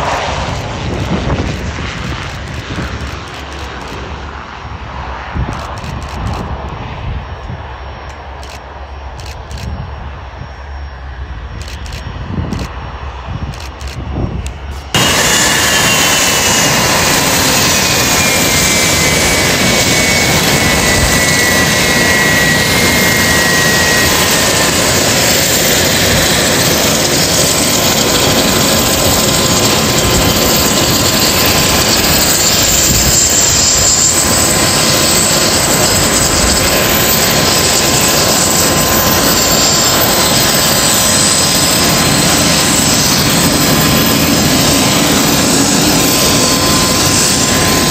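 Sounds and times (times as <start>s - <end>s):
high engine whine: 0.0s - 47.9s
jet engines roaring: 0.0s - 47.9s.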